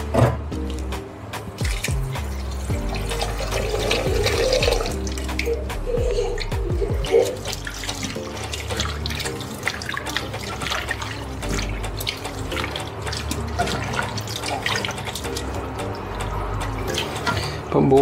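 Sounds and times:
hands swishing in bowl of water: 1.6 - 15.6
small water splashes: 1.6 - 17.7.

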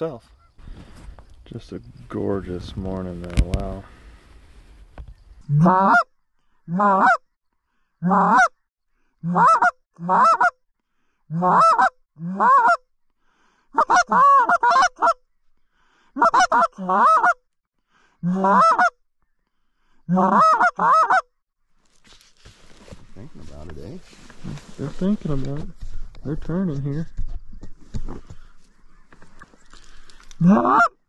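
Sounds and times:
goose call honks: 5.5 - 6.0, 6.7 - 7.2, 11.3 - 12.8, 18.2 - 18.9, 20.1 - 21.2, 30.4 - 31.0.

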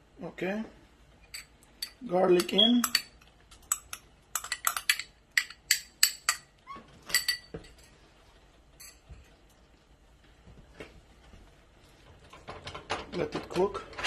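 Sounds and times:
spoon clinking on glass bowl: 1.3 - 6.5.

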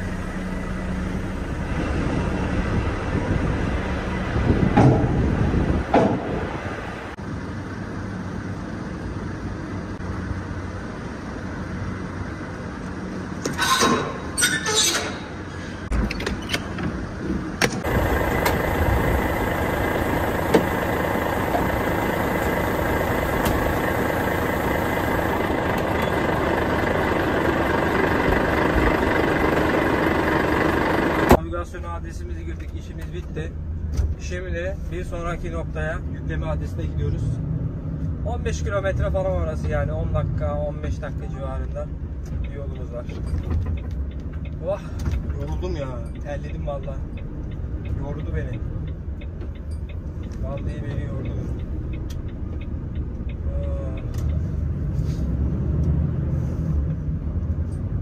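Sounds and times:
truck engine running: 0.0 - 11.0, 17.7 - 31.4.

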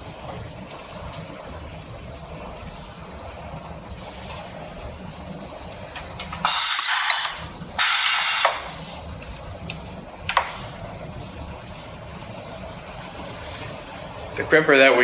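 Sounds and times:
compressed air hiss blasts: 6.4 - 9.1.

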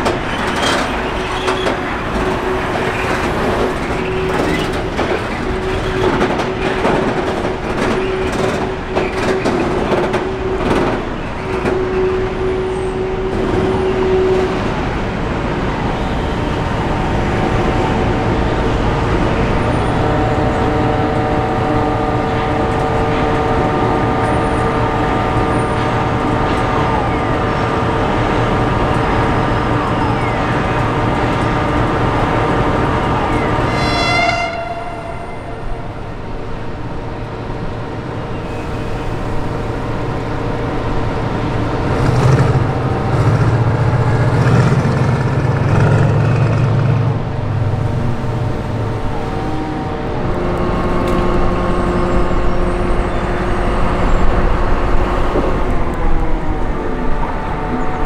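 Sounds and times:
train wheels clacking over rail joints: 0.0 - 12.0
train drone with held tones: 0.0 - 58.0.

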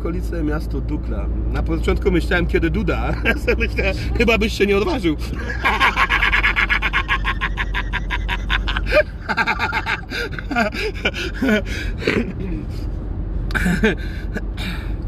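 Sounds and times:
car road noise rumble: 0.0 - 15.0
man laughing hard: 5.3 - 12.4, 13.5 - 14.6.

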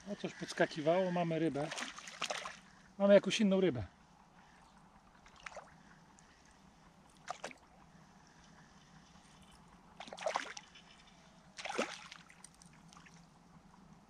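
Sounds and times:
fish splashing at water surface: 1.6 - 2.7, 7.1 - 7.7, 10.0 - 10.9, 11.6 - 13.2.

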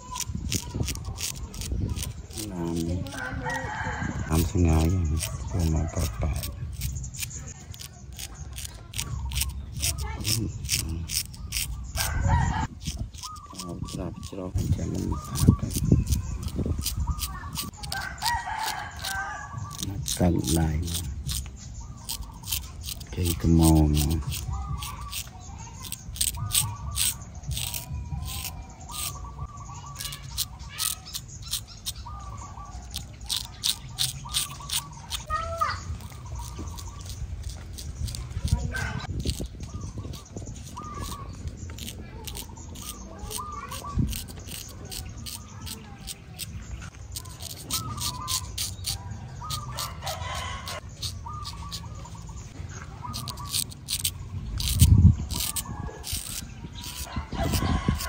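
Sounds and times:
birds whistling: 0.0 - 58.0
chickens calling: 0.0 - 58.0
razor scraping stubble: 0.0 - 58.0
rooster crowing: 3.2 - 4.4.

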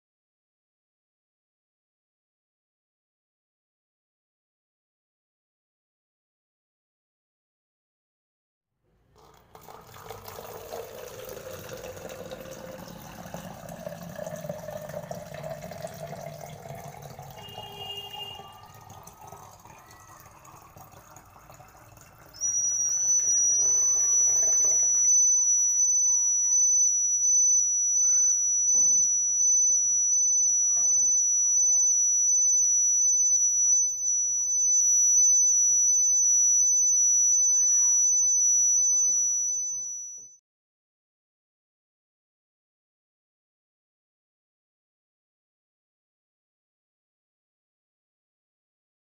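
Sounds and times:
water pouring into plastic bottle: 9.1 - 25.0
high-pitched buzzer tone: 10.7 - 21.7, 22.3 - 40.4.

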